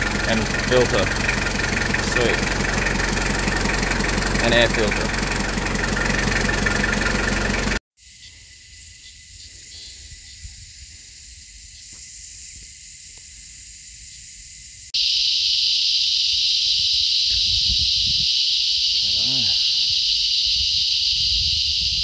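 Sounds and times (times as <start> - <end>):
faint outdoor rumble: 0.0 - 7.8
vehicle engine running: 0.0 - 7.8
cicadas chorus: 0.0 - 22.0.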